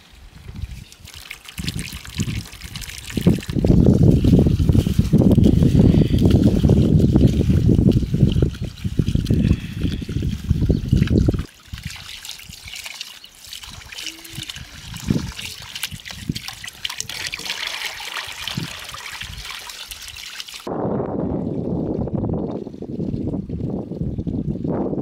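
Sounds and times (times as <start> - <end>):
water trickling into a bowl: 0.8 - 20.7.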